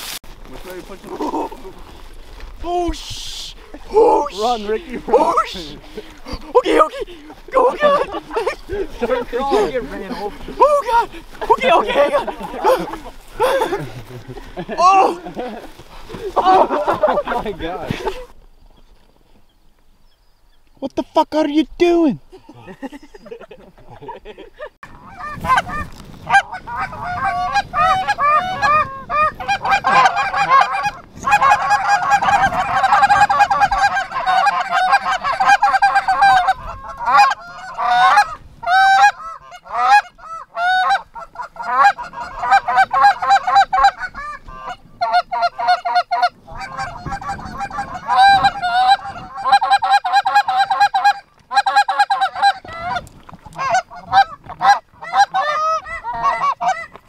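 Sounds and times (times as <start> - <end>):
goose honking and clucking: 4.0 - 13.4, 24.9 - 57.0.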